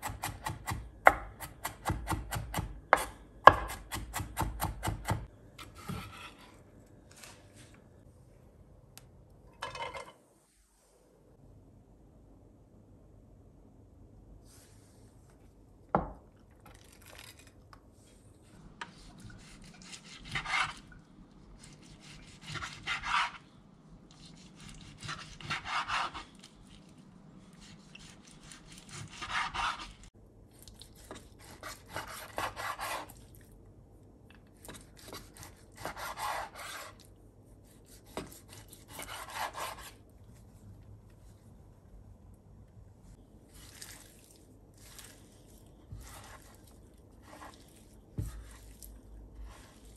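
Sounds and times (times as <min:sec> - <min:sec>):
knife sawing on wooden board: 0:24.8 - 0:26.3, 0:28.4 - 0:30.0, 0:31.6 - 0:33.1, 0:35.3 - 0:36.9, 0:38.1 - 0:39.9.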